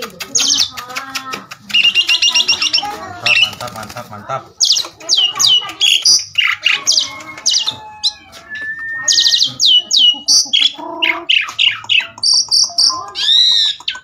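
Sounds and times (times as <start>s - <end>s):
starling singing: 0.0s - 14.0s.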